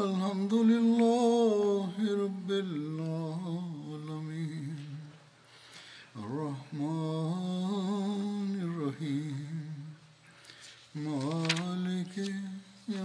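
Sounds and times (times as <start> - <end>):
man chanting: 11.0 - 13.0.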